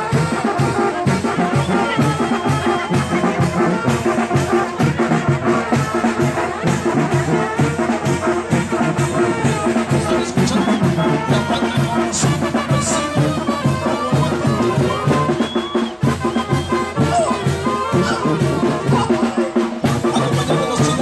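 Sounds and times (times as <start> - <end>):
steady drum beat: 0.0 - 21.0
trumpets: 0.0 - 21.0
sousaphone bass line: 17.0 - 21.0.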